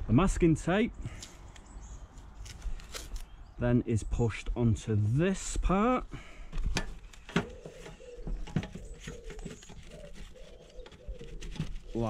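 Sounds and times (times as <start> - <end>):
tape roll clicks and rustles: 6.5 - 12.0.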